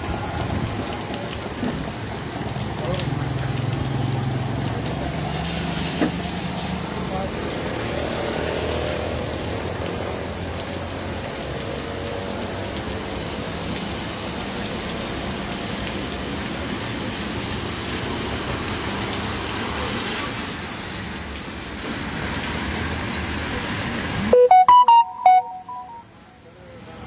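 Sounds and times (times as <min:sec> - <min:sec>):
vehicle engines passing: 0:00.0 - 0:20.3
tyres hissing through water: 0:13.2 - 0:23.8.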